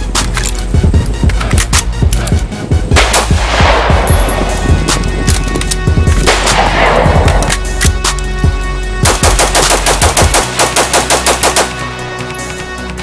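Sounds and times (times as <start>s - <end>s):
music: 0.0s - 13.0s
shotgun firing: 3.0s - 5.0s, 6.2s - 7.5s, 9.0s - 11.8s.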